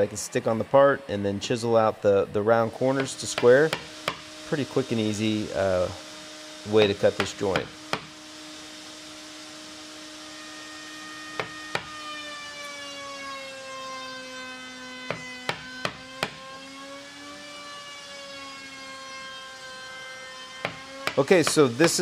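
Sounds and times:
chisel knocks: 3.0 - 4.2, 6.8 - 8.1, 11.4 - 12.0, 15.1 - 16.4, 20.6 - 22.0.

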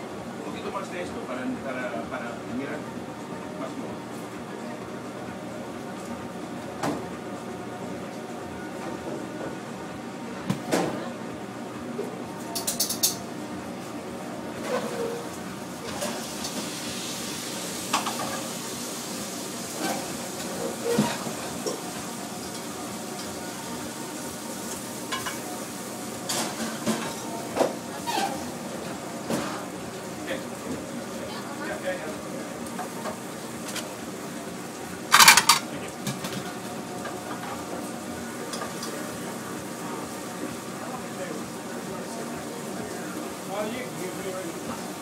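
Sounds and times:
kitchen background noise: 0.4 - 45.0
metal platter clattering on steel: 35.1 - 35.6
kitchenware clattering: 35.1 - 36.3.

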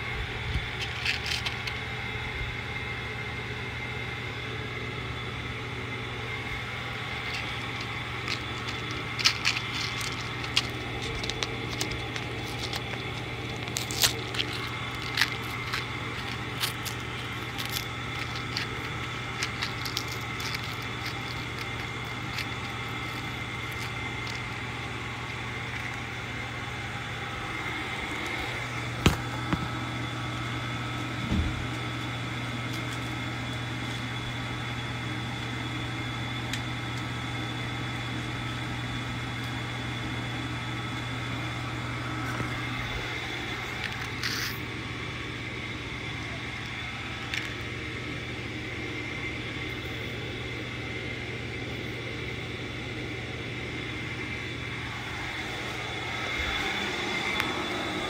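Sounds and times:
vacuum cleaner running: 0.0 - 58.0
candies rattling through nozzle: 0.8 - 1.8, 7.0 - 26.3, 43.6 - 44.6.

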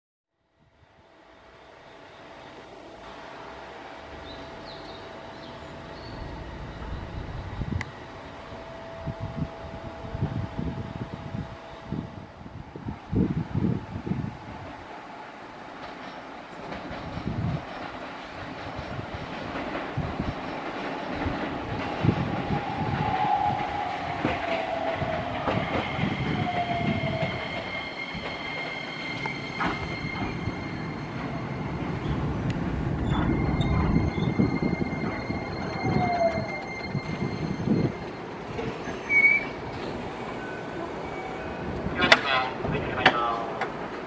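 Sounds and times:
train cars rumbling: 0.9 - 44.0
train motor whine: 1.8 - 12.2
wheels squealing: 22.1 - 42.6.

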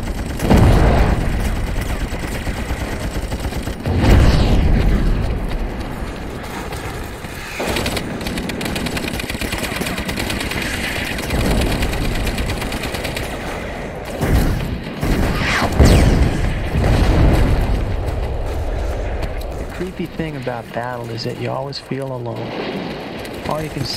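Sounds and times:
rapid machine-gun fire: 0.0 - 18.6
heavy explosions: 0.0 - 23.9.

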